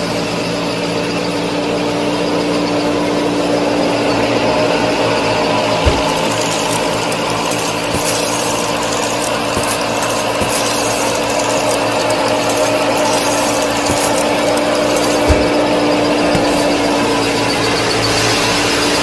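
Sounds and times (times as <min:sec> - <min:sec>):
small motor whirring gears: 0:06.0 - 0:15.6.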